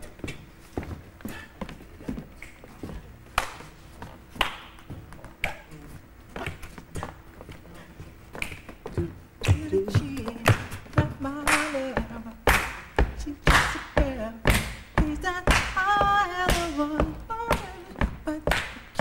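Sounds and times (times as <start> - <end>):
dancer's steps on stage floor: 0.0 - 19.0.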